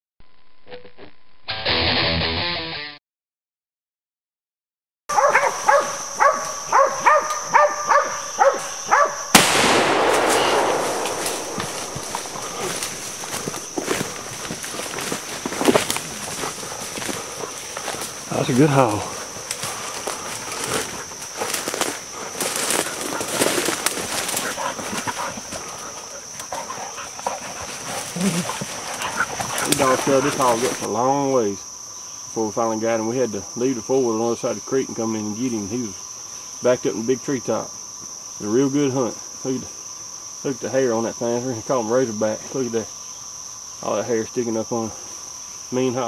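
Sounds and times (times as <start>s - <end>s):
dogs barking: 5.1s - 9.3s, 24.1s - 30.8s
loud gunshot: 9.3s - 13.4s
scuffling and rustling in leaves: 9.7s - 30.9s.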